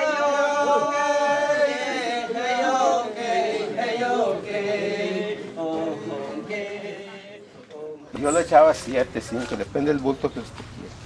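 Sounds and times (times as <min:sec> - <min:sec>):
person singing a chant: 0:00.0 - 0:08.2.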